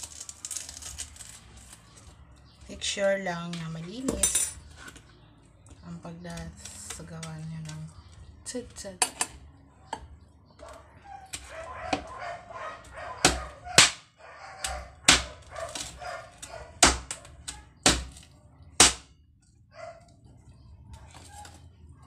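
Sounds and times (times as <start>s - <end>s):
knife chopping meat on hard surface: 13.0s - 14.1s, 14.7s - 18.2s, 18.8s - 19.1s.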